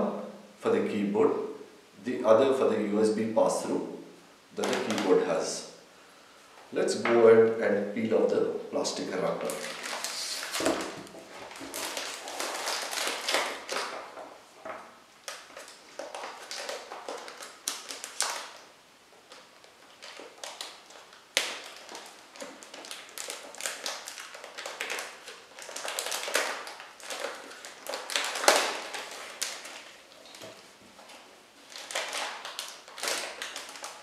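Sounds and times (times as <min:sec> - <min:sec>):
plastic cover crinkling: 0:04.6 - 0:05.6, 0:09.2 - 0:34.0.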